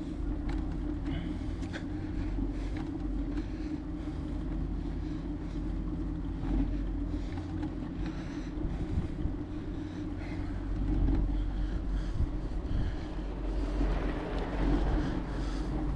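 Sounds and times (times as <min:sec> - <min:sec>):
road rumble: 0:00.0 - 0:15.9.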